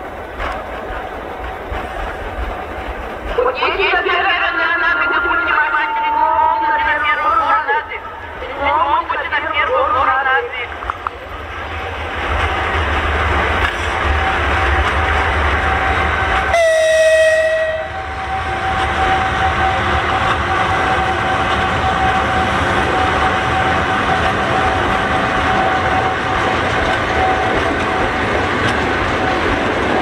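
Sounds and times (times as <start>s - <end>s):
wheels rumbling on rail: 0.0s - 30.0s
train horn blast: 16.4s - 23.8s.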